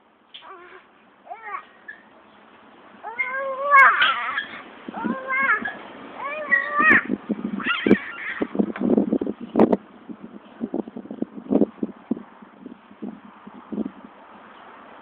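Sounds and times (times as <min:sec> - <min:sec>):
child making strained calls: 0:00.4 - 0:01.7, 0:03.0 - 0:08.5.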